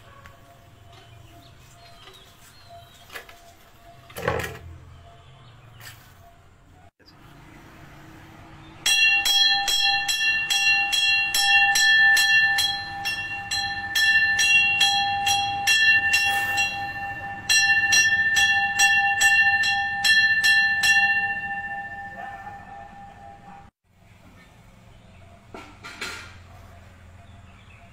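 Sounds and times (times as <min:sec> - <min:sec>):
temple bell ringing: 0:08.7 - 0:23.7.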